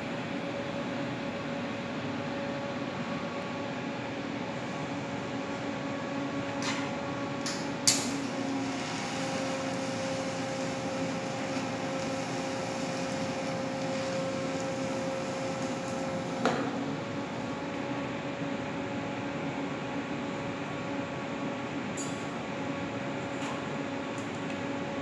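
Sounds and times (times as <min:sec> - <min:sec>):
arc welding hum and hiss: 0:00.0 - 0:25.0
sharp welding clicks: 0:07.4 - 0:08.2.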